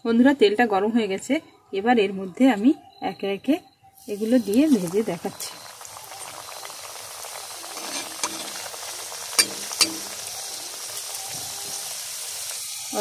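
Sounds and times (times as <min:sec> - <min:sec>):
food deep-frying in oil: 0:04.0 - 0:13.0
utensil tapping a pan: 0:09.4 - 0:10.2.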